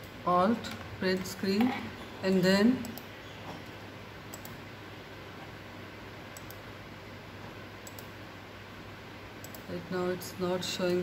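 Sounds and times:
steady low hum: 0.0s - 11.0s
computer mouse clicks: 2.8s - 4.6s, 6.3s - 6.6s, 7.8s - 8.2s, 9.4s - 9.7s.

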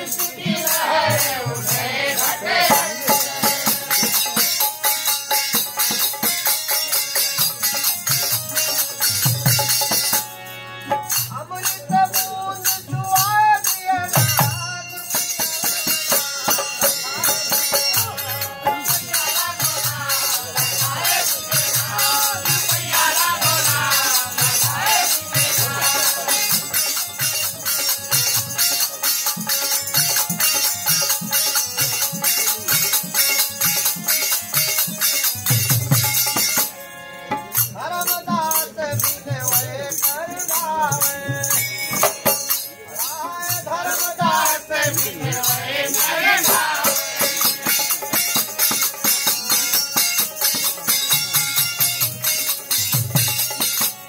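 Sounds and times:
voices singing: 0.0s - 4.6s, 12.0s - 27.2s, 37.8s - 48.5s
metallic jingling percussion: 0.0s - 54.0s.

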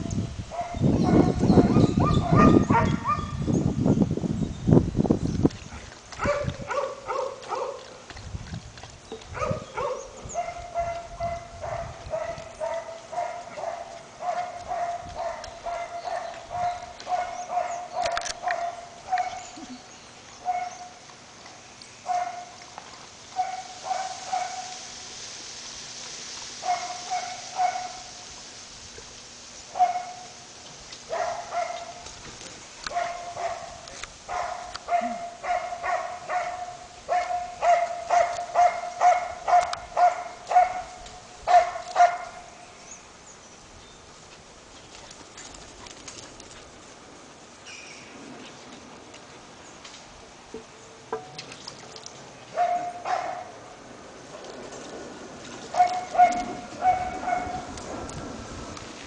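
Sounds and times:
puppy barking: 0.5s - 3.4s, 6.2s - 7.9s, 9.4s - 19.6s, 20.4s - 20.9s, 22.1s - 22.5s, 23.4s - 24.8s, 26.6s - 28.1s, 29.8s - 30.2s, 31.1s - 32.0s, 32.9s - 42.4s, 52.5s - 53.6s, 55.7s - 57.7s.

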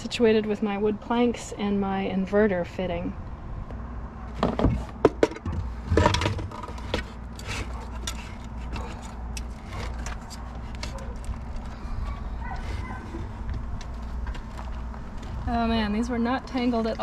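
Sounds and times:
device clunking on wooden shelf: 4.4s - 7.0s.

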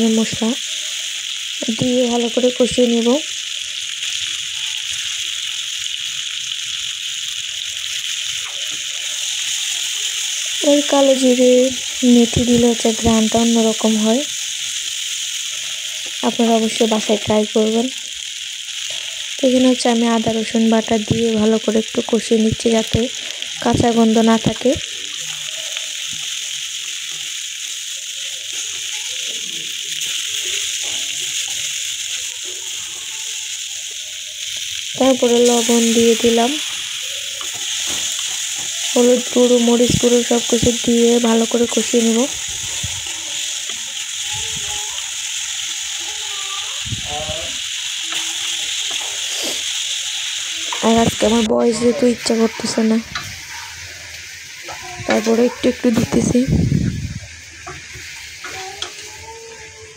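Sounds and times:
potatoes sizzling in hot oil: 0.0s - 59.9s
spatula scraping a wok: 35.4s - 44.7s, 47.9s - 51.3s.

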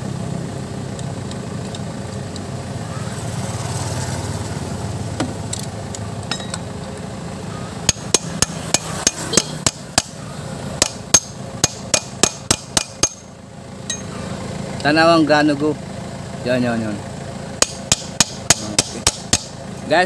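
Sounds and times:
hammer striking steel bar: 7.8s - 10.2s, 10.8s - 13.3s, 17.6s - 19.6s.

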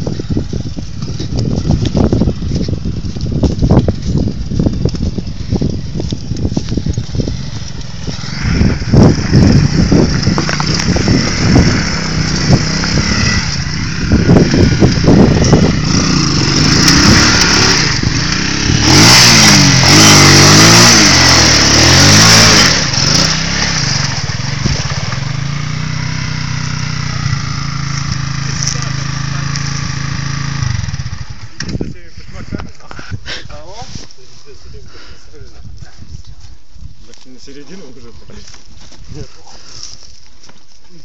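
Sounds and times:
quad bike engine revving: 0.0s - 31.8s
water and mud splashing: 16.6s - 27.2s.

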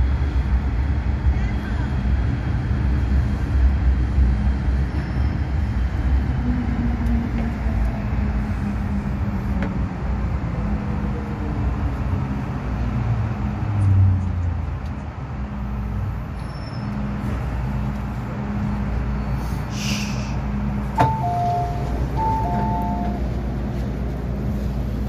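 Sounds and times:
train wheels rumbling: 15.9s - 25.0s.

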